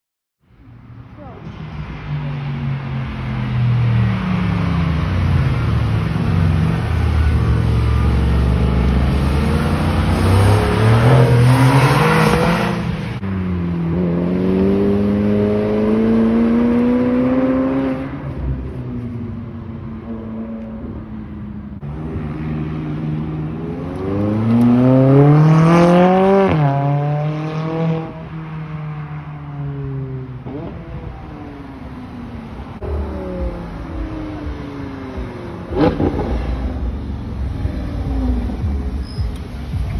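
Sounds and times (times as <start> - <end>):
sports cars accelerating hard: 7.6 - 18.6, 21.8 - 28.3, 32.8 - 38.9.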